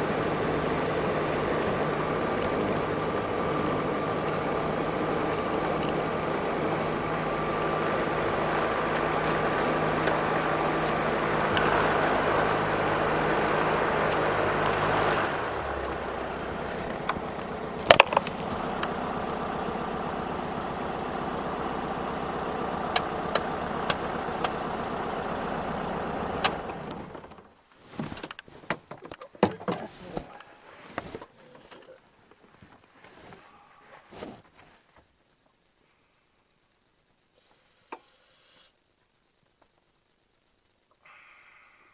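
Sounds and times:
light aircraft engine running: 0.0 - 27.5.

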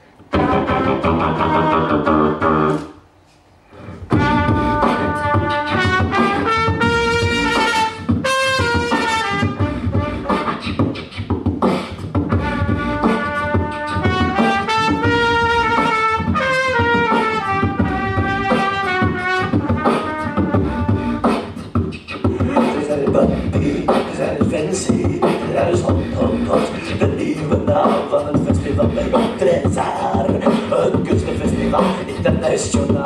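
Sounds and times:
beatboxing into a microphone: 0.0 - 33.0
second beatboxer: 0.0 - 33.0
trumpet playing a melody: 0.3 - 2.9, 4.0 - 11.0, 12.2 - 21.5.

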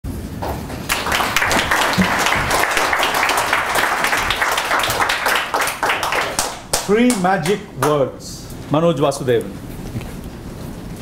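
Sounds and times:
audience applauding: 0.9 - 8.1.

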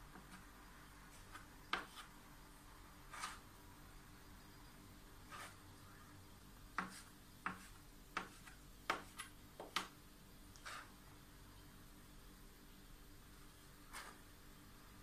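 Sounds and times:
knife scraping: 3.1 - 3.4.

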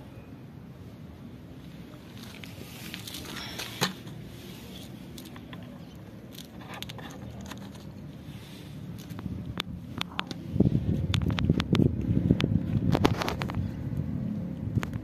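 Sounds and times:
wind rumble on microphone: 8.9 - 15.0.

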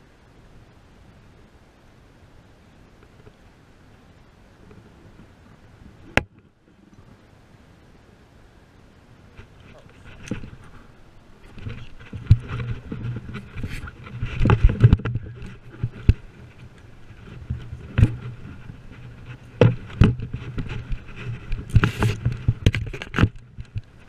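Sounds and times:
low steady hum: 0.0 - 24.0
camera rubbing against shirt: 9.3 - 24.0.

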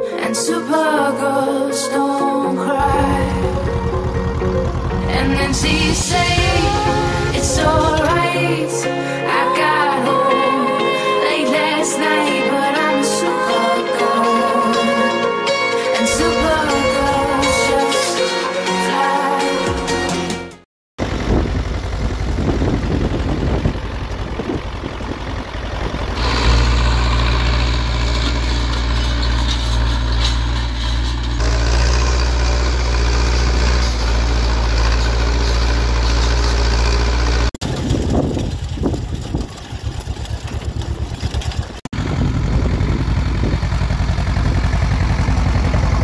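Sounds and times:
tractor diesel engine chugging: 2.8 - 8.8, 21.0 - 46.0
tractor diesel engine under load: 2.8 - 8.9, 21.0 - 46.0.

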